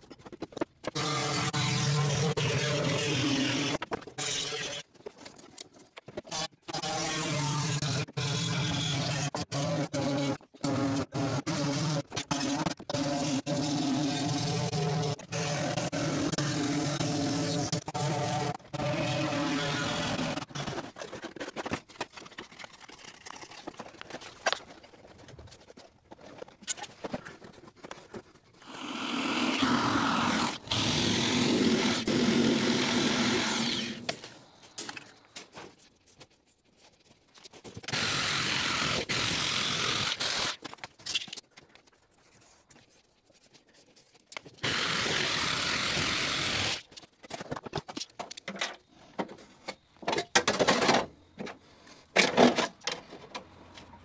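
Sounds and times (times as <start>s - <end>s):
power tool cutting sheet steel: 1.0s - 4.8s, 28.7s - 34.1s, 37.9s - 40.6s, 44.6s - 46.8s.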